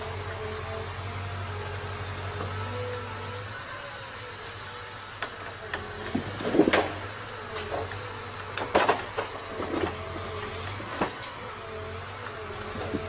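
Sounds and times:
diesel engine running: 0.0 - 13.0
hydraulic whine: 0.0 - 13.0
wooden knocks and clunks of logs: 5.2 - 13.0.

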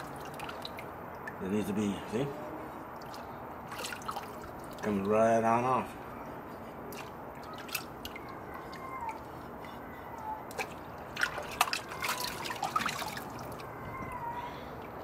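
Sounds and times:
water dripping and splashing: 0.0 - 1.5, 2.8 - 13.8.

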